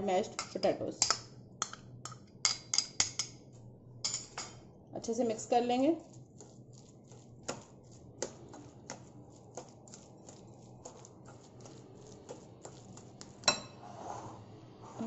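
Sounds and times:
metal spoon clicking on glass bowl: 0:00.4 - 0:03.3.

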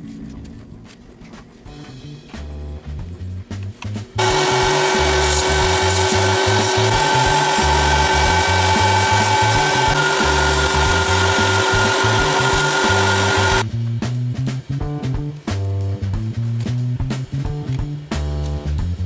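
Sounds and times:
background music: 0:00.0 - 0:19.0
small power tool whining: 0:04.2 - 0:13.6.

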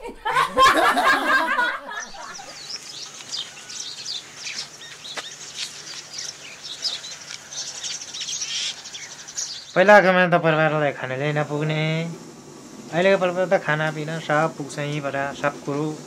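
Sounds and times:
people laughing and chatting: 0:00.0 - 0:03.2
small birds chirping: 0:01.9 - 0:16.0.

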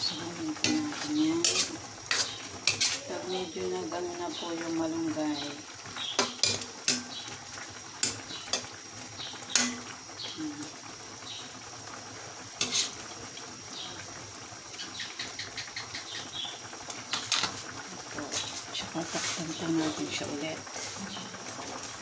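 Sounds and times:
metal ladle scraping a wok: 0:00.6 - 0:03.2, 0:06.2 - 0:07.2, 0:08.0 - 0:08.7, 0:09.5 - 0:10.0, 0:12.6 - 0:13.0.

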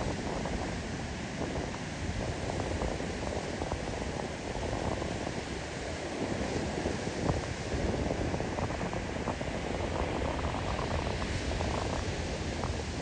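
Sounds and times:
surf rushing on beach: 0:00.0 - 0:13.0
wind buffeting microphone: 0:00.0 - 0:13.0.

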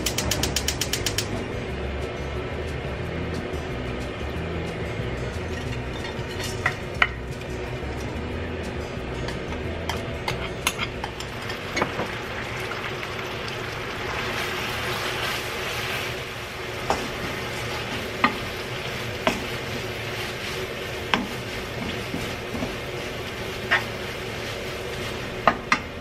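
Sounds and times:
food sizzling in oil: 0:08.9 - 0:26.0
spatula stirring in pan: 0:14.1 - 0:26.0.

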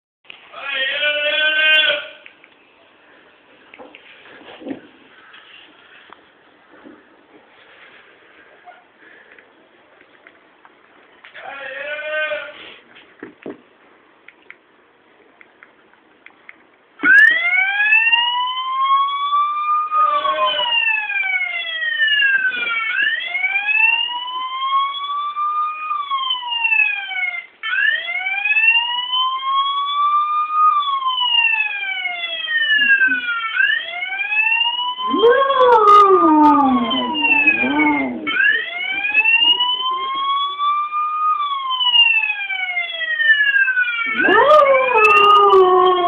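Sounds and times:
police siren wailing: 0:17.0 - 0:46.0
dog howling: 0:35.1 - 0:39.5, 0:44.1 - 0:46.0.

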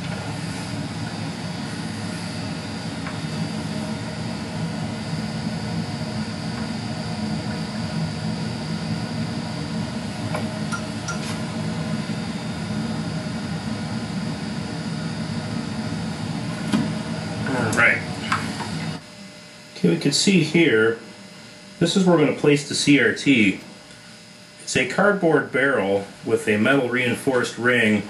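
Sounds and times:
low hum: 0:00.0 - 0:19.6.

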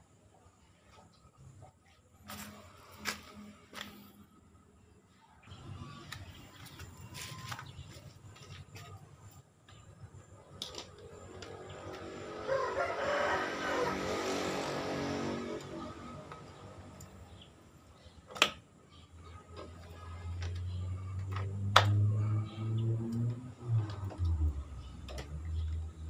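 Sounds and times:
rooster crowing: 0:12.2 - 0:16.1.

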